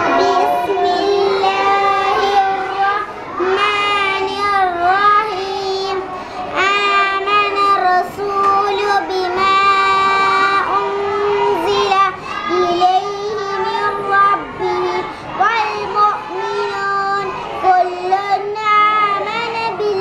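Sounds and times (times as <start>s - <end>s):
girl chanting melodically: 0.0s - 20.0s.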